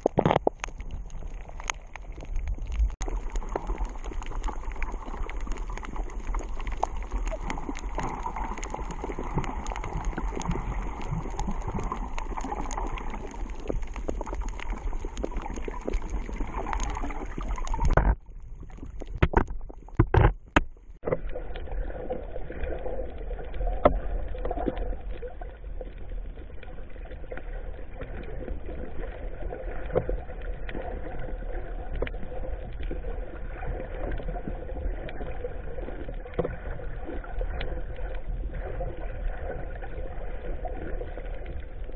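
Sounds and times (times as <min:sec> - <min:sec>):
muffled underwater water rush: 0:00.0 - 0:41.9
clicks and taps: 0:19.2 - 0:20.7.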